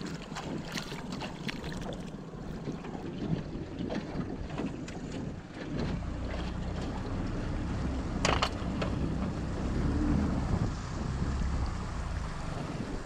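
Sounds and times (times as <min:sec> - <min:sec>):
outboard motor running: 0:00.0 - 0:13.0
wind on microphone: 0:00.0 - 0:13.0.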